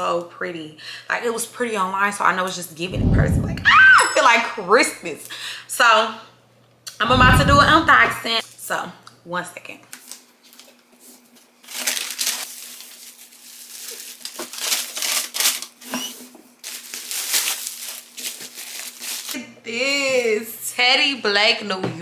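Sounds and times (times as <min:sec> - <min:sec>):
packaging crinkling and rustling: 0:09.9 - 0:19.4.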